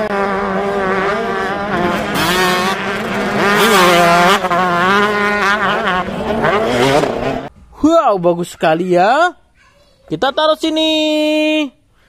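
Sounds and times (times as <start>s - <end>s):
motocross bike engine revving: 0.0s - 7.5s.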